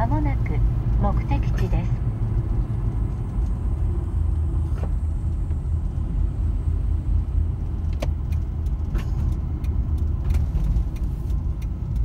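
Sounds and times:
van engine and tyres rumbling: 0:00.0 - 0:12.0.

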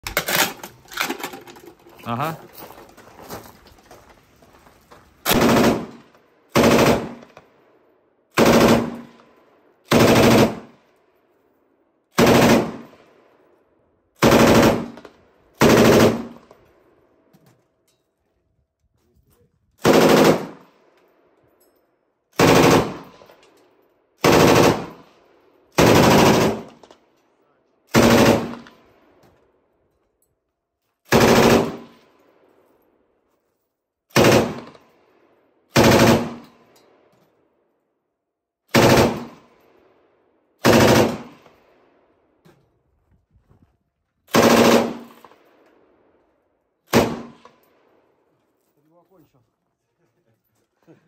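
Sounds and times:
machine gun firing bursts: 0:05.3 - 0:07.4, 0:08.3 - 0:09.1, 0:09.9 - 0:10.8, 0:12.2 - 0:13.0, 0:14.2 - 0:15.0, 0:15.6 - 0:16.5, 0:19.8 - 0:20.7, 0:22.4 - 0:23.2, 0:24.2 - 0:25.1, 0:25.8 - 0:26.8, 0:27.9 - 0:28.7, 0:31.1 - 0:32.0, 0:34.1 - 0:34.8, 0:35.7 - 0:36.4, 0:38.7 - 0:39.5, 0:40.6 - 0:41.5, 0:44.3 - 0:45.3, 0:46.9 - 0:47.4.

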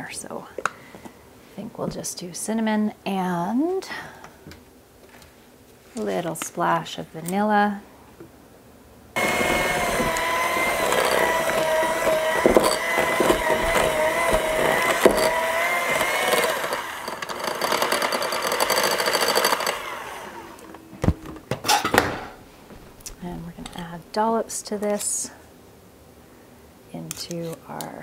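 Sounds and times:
electric hand mixer running: 0:09.2 - 0:20.8.

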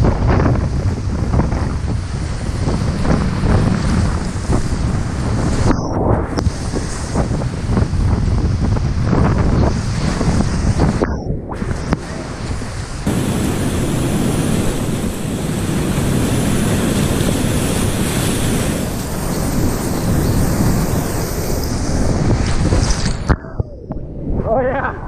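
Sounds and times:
water buffeting microphone: 0:00.1 - 0:24.2
whitewater rapids rushing: 0:13.1 - 0:22.1.

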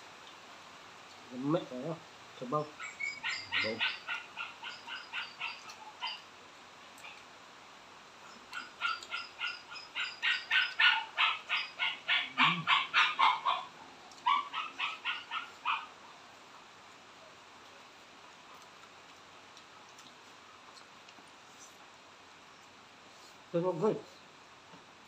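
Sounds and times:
animal calling sharply: 0:02.8 - 0:06.2.

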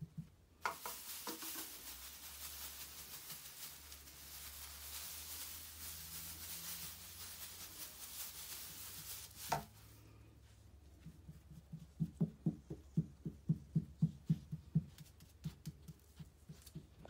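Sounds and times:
puppy rustling on towel: 0:00.6 - 0:11.9.

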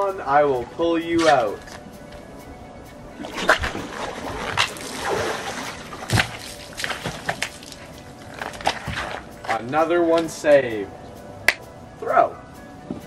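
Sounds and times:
water sloshing and splashing: 0:03.1 - 0:09.6.

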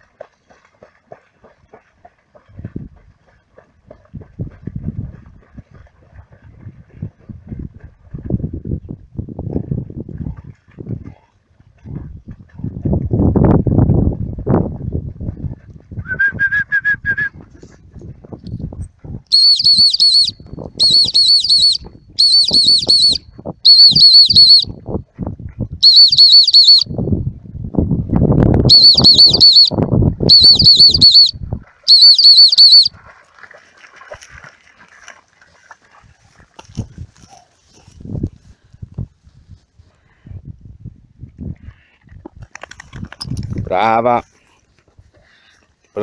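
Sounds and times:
trilling dog whistle: 0:16.0 - 0:17.4, 0:19.3 - 0:24.7, 0:25.8 - 0:26.9, 0:28.7 - 0:32.9.

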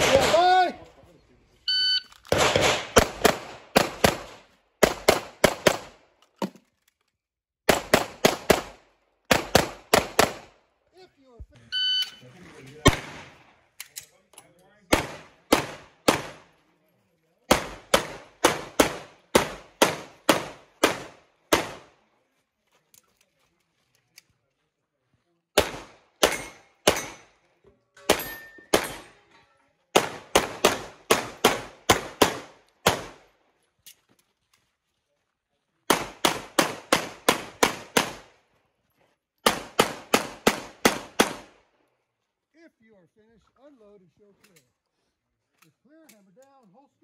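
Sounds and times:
pistol shots: 0:00.0 - 0:00.5, 0:02.3 - 0:06.0, 0:07.7 - 0:10.6, 0:12.8 - 0:13.5, 0:14.9 - 0:16.5, 0:17.5 - 0:22.0, 0:25.6 - 0:27.3, 0:28.0 - 0:29.2, 0:29.9 - 0:33.3, 0:35.9 - 0:38.4, 0:39.4 - 0:41.6.

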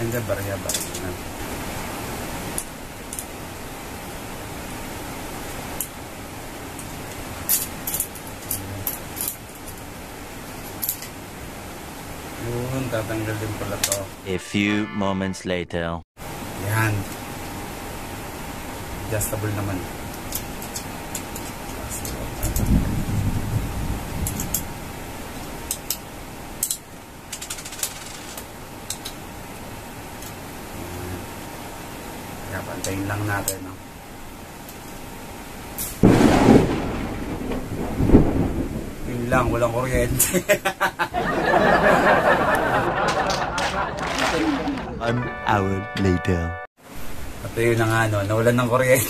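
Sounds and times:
steady hiss: 0:00.0 - 0:14.3, 0:16.2 - 0:43.2, 0:46.8 - 0:49.0
steady background hum: 0:00.0 - 0:49.0
small metal parts clicking: 0:06.8 - 0:09.9, 0:10.7 - 0:11.1, 0:24.2 - 0:24.7, 0:26.6 - 0:29.2.

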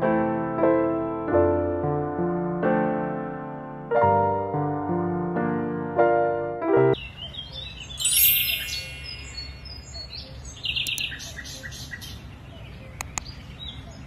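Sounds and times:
piano music: 0:00.0 - 0:07.0, 0:08.0 - 0:09.9
songbirds chirping: 0:07.0 - 0:14.0.

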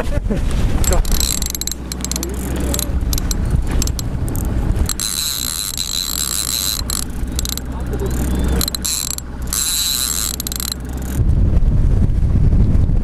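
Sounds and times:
wind: 0:00.0 - 0:13.0
outboard motor running: 0:00.6 - 0:11.2
fishing rod clicks and knocks: 0:00.7 - 0:11.2
fishing reel ratchet buzzing: 0:00.8 - 0:11.2.

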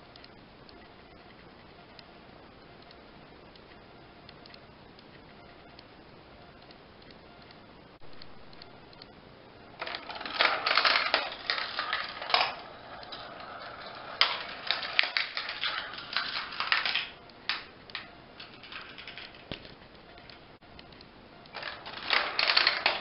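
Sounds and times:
marbles rattling on plastic tracks: 0:09.8 - 0:19.8, 0:21.5 - 0:23.0.

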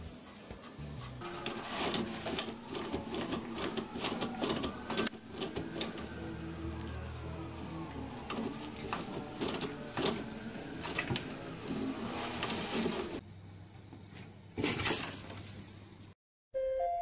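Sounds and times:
toilet paper roll spinning: 0:00.0 - 0:13.2
paper rustling: 0:01.3 - 0:05.5, 0:14.1 - 0:16.1.

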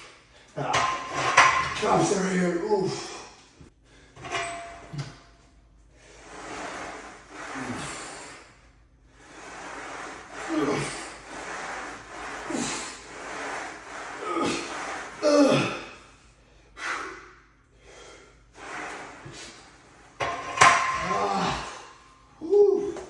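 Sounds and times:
person breathing hard and grunting: 0:10.3 - 0:11.6, 0:14.1 - 0:18.4, 0:21.0 - 0:23.0.

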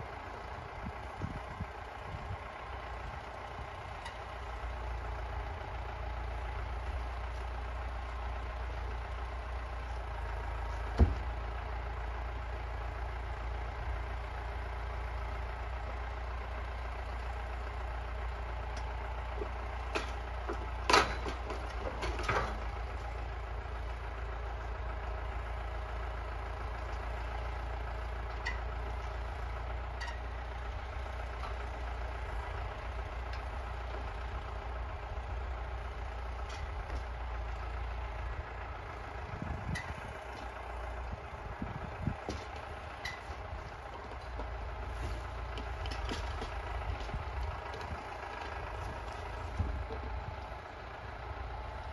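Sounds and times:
tractor engine running: 0:00.0 - 0:51.9
logs knocking: 0:07.0 - 0:11.8, 0:18.7 - 0:23.2, 0:42.0 - 0:50.3.

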